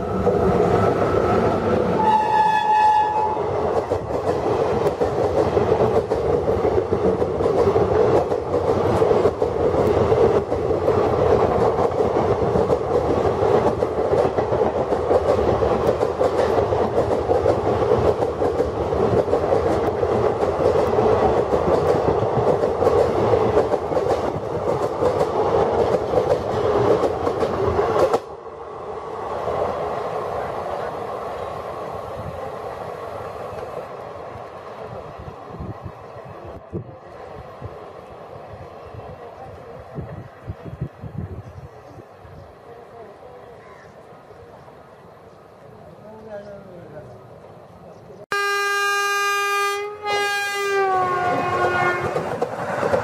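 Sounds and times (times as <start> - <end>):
train coaches passing at speed: 0.0 - 53.0
wheels clacking over rail joints: 51.2 - 53.0.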